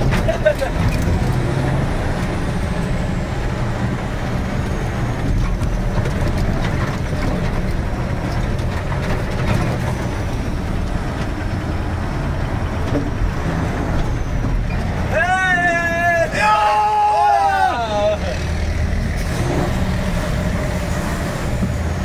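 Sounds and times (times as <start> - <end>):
cab knocks and rattles: 0.0 - 1.7, 5.1 - 11.9, 12.5 - 15.1
heavy truck engine under load: 0.0 - 22.0.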